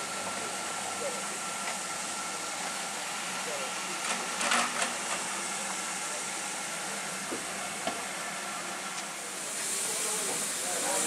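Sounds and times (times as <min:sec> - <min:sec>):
steam locomotive hissing steam: 0:00.0 - 0:11.0
gust of steam: 0:09.2 - 0:11.0.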